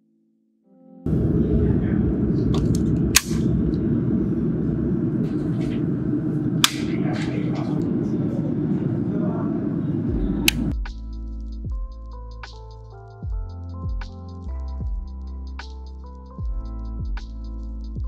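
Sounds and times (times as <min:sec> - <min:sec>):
steady low hum: 0:01.1 - 0:12.2
electrical switches clicking: 0:02.6 - 0:03.5, 0:06.6 - 0:07.0, 0:10.5 - 0:10.7.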